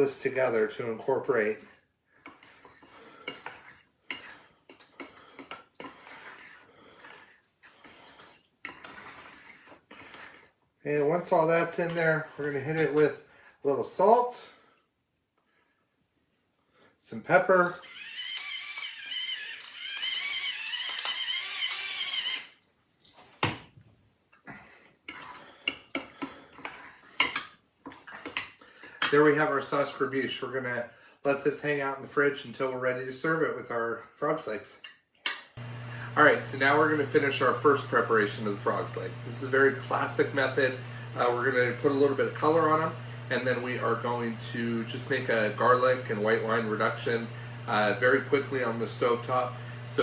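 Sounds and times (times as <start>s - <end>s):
metal spoon scraping steel bowl: 1.4s - 10.6s, 25.1s - 28.5s
electric pepper mill grinding: 17.8s - 22.5s, 35.6s - 50.0s.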